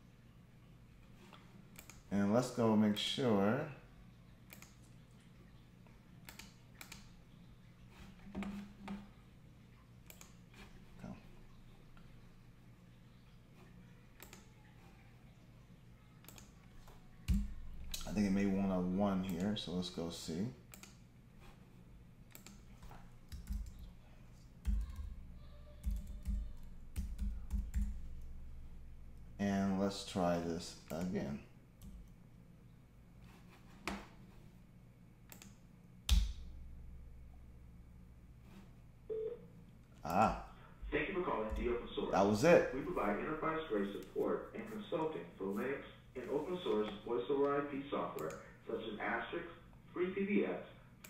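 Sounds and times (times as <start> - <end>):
steady low hum: 0.0 - 51.0
computer keyboard keystrokes: 22.3 - 22.6, 23.2 - 23.9, 25.8 - 28.0.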